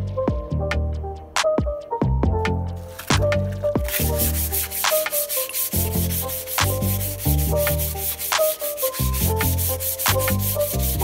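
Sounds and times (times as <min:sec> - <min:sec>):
background music with bass and beat: 0:00.0 - 0:11.0
pad rubbing wooden handle: 0:03.8 - 0:11.0.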